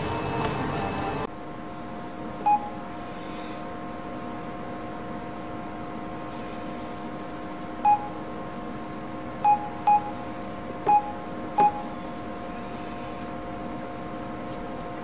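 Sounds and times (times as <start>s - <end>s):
steady hum: 0.0s - 15.0s
phone keypad beeps: 2.4s - 2.8s, 7.8s - 8.2s, 9.5s - 10.2s, 10.9s - 11.9s.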